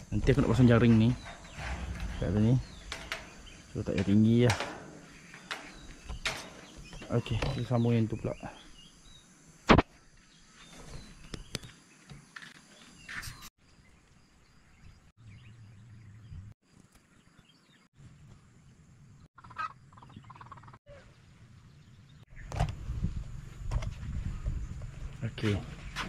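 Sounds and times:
faint outdoor background: 0.0 - 26.0.

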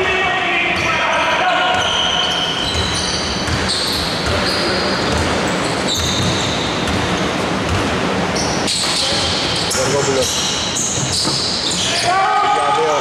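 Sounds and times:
sneakers squeaking: 0.8 - 12.2
basketball bouncing on wooden floor: 2.6 - 8.0.

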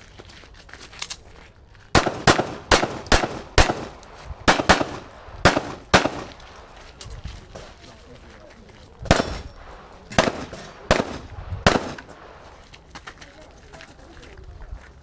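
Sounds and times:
handgun shots with echo: 2.0 - 6.8, 9.0 - 12.4.

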